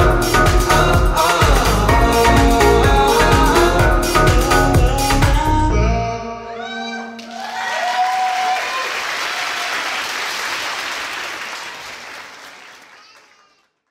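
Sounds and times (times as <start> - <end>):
dance music: 0.0 - 5.8
audience whooping: 6.7 - 13.1
audience applause: 7.2 - 13.8.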